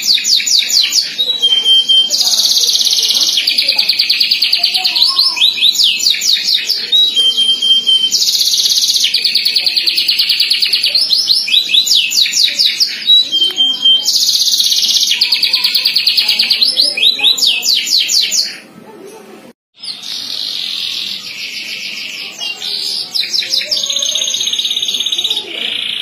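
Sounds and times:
canary singing trills: 0.0s - 18.8s, 19.8s - 26.0s.

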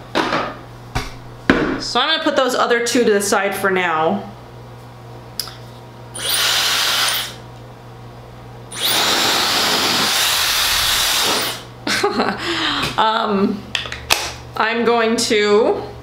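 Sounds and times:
hair dryer blowing air: 6.2s - 7.4s, 8.7s - 11.7s.

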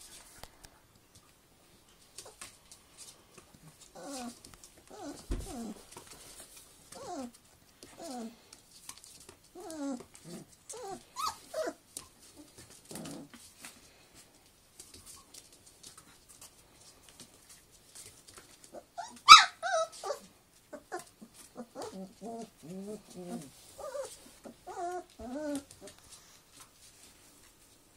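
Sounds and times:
puppies whining and yipping: 3.9s - 5.9s, 6.9s - 8.4s, 9.5s - 11.8s, 18.7s - 26.0s.

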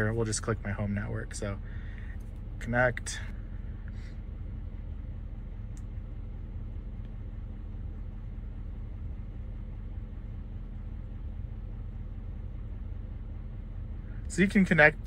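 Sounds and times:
diesel engine idling: 0.0s - 15.0s
faint click: 5.7s - 5.9s.

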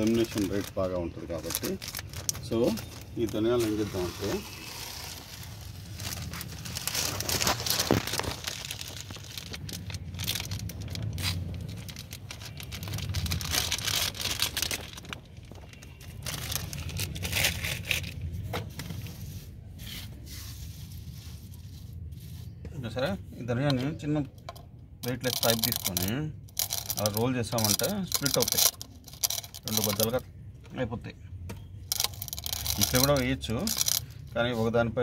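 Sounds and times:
plastic bag crinkling: 0.0s - 18.3s, 25.0s - 30.2s, 31.9s - 34.3s.

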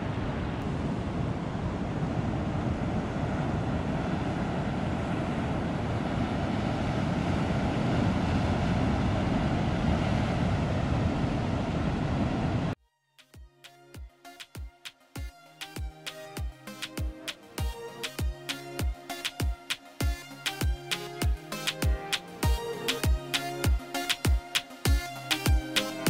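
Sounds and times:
wind on microphone: 0.0s - 12.8s.

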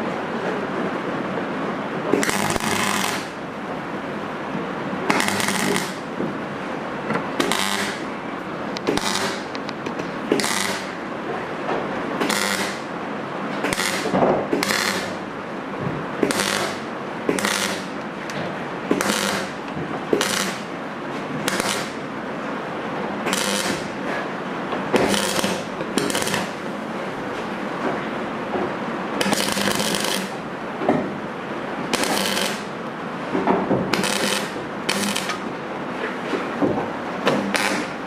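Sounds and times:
steady background noise: 0.0s - 38.0s
welder tack welding bursts: 2.2s - 3.4s, 5.1s - 6.0s, 7.4s - 8.0s, 8.9s - 9.5s, 10.4s - 10.9s, 12.2s - 12.8s, 13.7s - 15.2s, 16.3s - 17.9s, 19.0s - 19.6s, 20.2s - 20.7s, 21.5s - 22.0s, 23.3s - 23.9s, 25.0s - 26.6s, 29.2s - 30.4s, 31.9s - 32.7s, 33.9s - 35.4s, 37.5s - 37.9s.

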